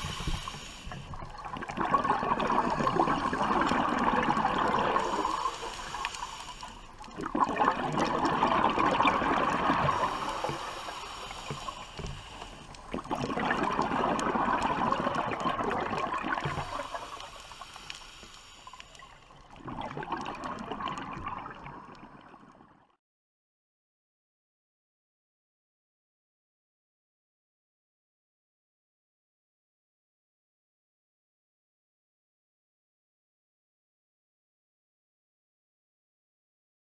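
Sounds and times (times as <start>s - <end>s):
diver breathing in: 0.0s - 19.4s
underwater bubbles gurgling: 0.0s - 22.9s.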